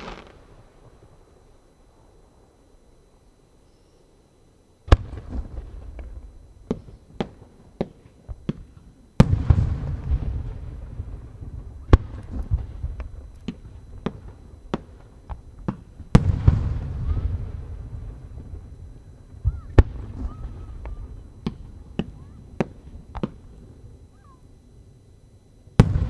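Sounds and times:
firework pops and crackles: 0:00.0 - 0:00.5
sharp firework cracks: 0:00.0 - 0:00.7
firework shells booming: 0:00.0 - 0:01.0, 0:04.9 - 0:18.8, 0:25.8 - 0:26.0.

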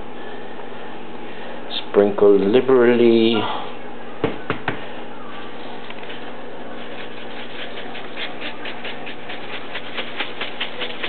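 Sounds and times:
seeds pattering on dough: 0:05.7 - 0:11.0.

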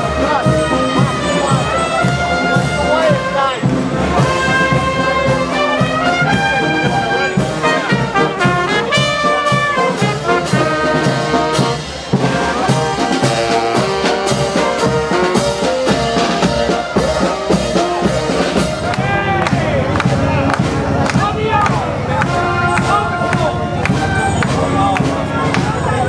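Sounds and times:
bass drum beat: 0:00.0 - 0:26.0
marching band brass: 0:00.0 - 0:26.0.

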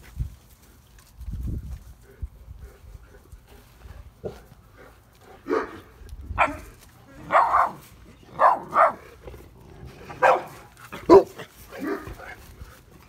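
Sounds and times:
puppy barking: 0:05.4 - 0:09.1, 0:10.1 - 0:12.4.

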